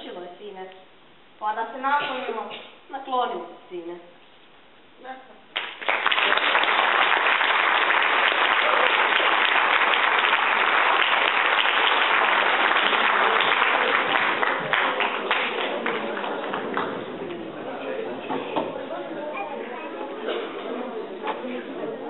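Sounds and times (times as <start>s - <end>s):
audience applauding: 5.6s - 17.6s.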